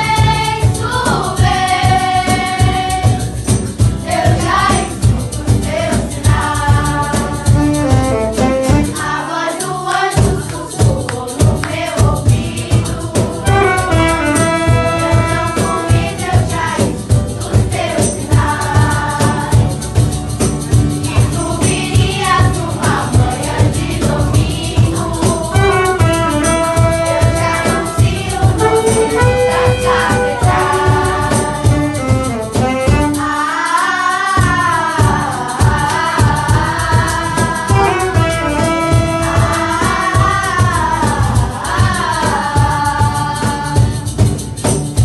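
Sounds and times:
girls choir singing: 0.0 - 20.1, 20.7 - 32.0, 33.0 - 44.4
shaker rattling: 0.0 - 45.0
saxophone: 7.5 - 9.0, 13.4 - 15.8, 25.6 - 28.0, 28.6 - 33.6, 37.7 - 39.8
trumpet: 7.5 - 9.0, 13.4 - 16.0, 25.6 - 28.0, 28.6 - 33.5, 37.7 - 39.9.

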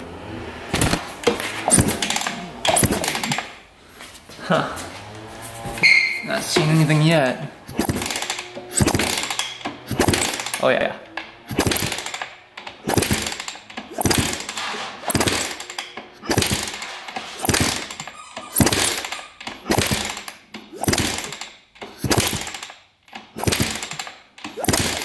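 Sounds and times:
engine spinning freely: 0.0 - 3.5, 7.6 - 10.6, 11.3 - 14.5
kickstarter clunks: 0.7 - 3.6, 7.7 - 25.0.

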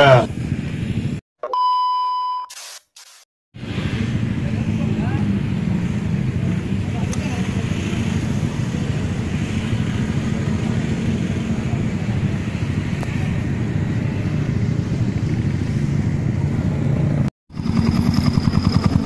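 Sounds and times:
motorcycle engine idling: 17.5 - 19.0.

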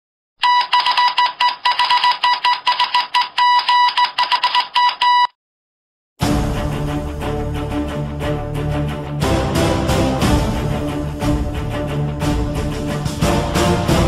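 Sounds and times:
morse code beeping: 0.4 - 5.4
theme music: 6.2 - 14.0.

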